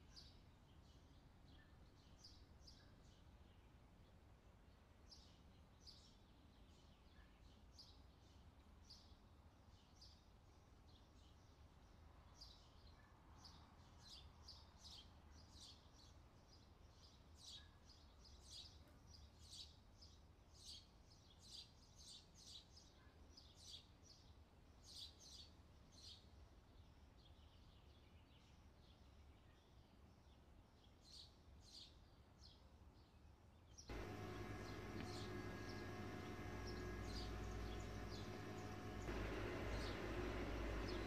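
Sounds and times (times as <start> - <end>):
low steady hum: 33.9 - 41.0.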